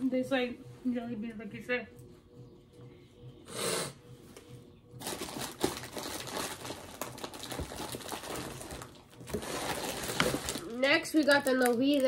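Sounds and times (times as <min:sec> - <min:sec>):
plastic wrapper crinkling: 0:05.0 - 0:12.0.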